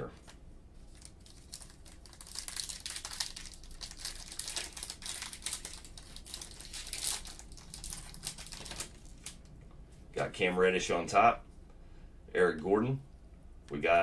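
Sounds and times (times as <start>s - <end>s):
foil wrappers crinkling and tearing: 0.8s - 9.5s.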